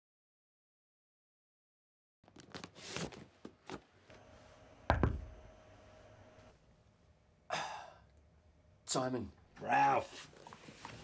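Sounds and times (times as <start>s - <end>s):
paper folders rustling: 2.2s - 4.0s, 10.0s - 11.0s.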